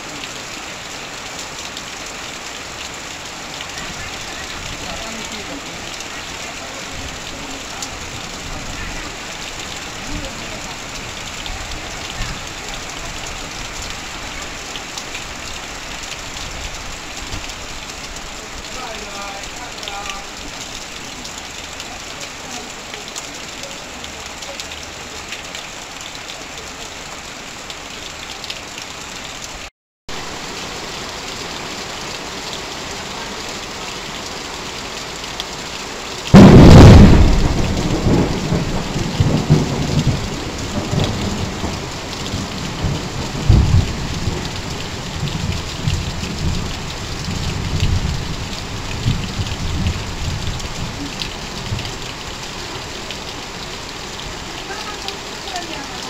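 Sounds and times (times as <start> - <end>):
heavy rain on tin sheets: 0.0 - 56.0
water pouring off a roof: 0.0 - 56.0
thunder clap and rumble: 36.3 - 52.0.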